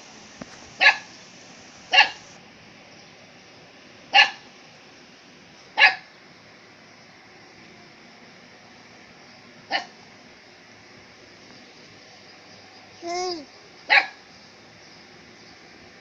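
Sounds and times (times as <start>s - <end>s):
dog barking: 0.8s - 1.1s, 1.9s - 2.2s, 4.1s - 4.4s, 5.8s - 6.1s, 9.7s - 9.9s, 13.9s - 14.2s.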